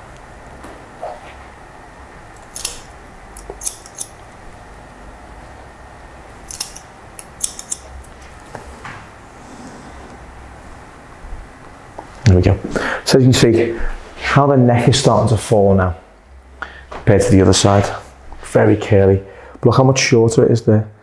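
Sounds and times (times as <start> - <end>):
scissors snipping hair: 2.4 - 4.3, 6.4 - 8.2.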